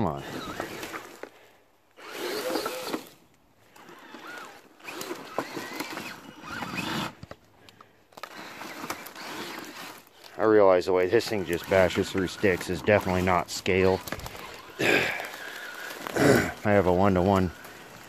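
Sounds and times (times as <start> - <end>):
tyres crunching through leaves: 0.1 - 7.2, 8.1 - 18.0
electric motor whining: 0.2 - 1.2, 2.0 - 7.3, 8.2 - 10.1, 11.1 - 16.6.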